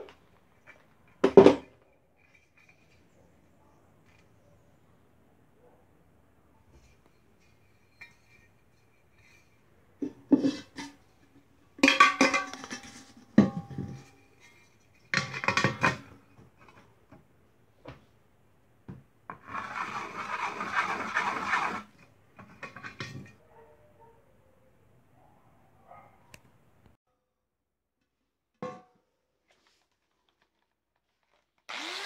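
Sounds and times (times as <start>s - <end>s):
metal tool scratching lid: 19.4s - 22.0s.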